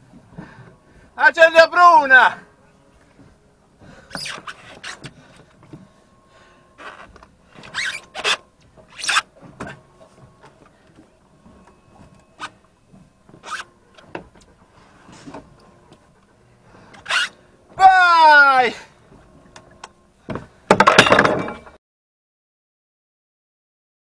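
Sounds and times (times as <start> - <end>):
faint steady hum: 0.0 - 17.9.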